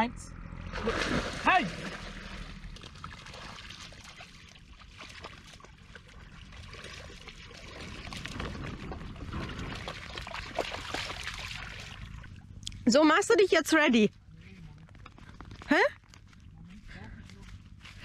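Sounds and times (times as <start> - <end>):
water splashing and trickling: 0.6 - 12.9.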